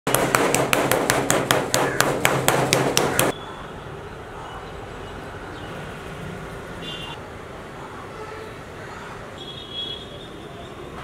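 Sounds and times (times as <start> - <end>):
meat mallet pounding on board: 0.1 - 3.3.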